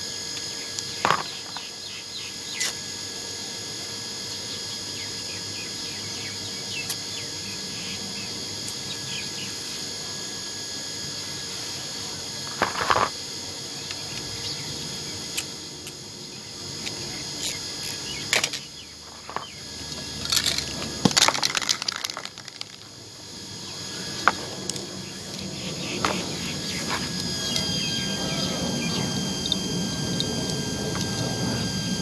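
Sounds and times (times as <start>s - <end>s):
small parts clicking and knocking: 17.4s - 22.9s.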